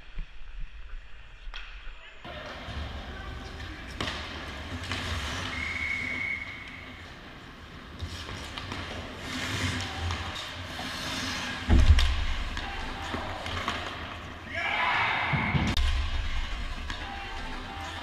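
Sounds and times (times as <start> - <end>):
skates scraping on ice: 2.3 - 14.4.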